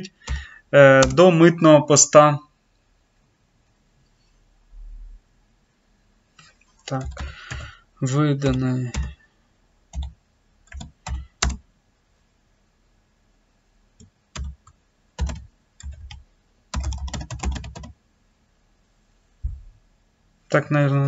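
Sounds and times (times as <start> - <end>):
computer keyboard typing: 0.1 - 1.3, 6.9 - 7.8, 8.4 - 9.2, 9.9 - 11.6, 14.0 - 18.0.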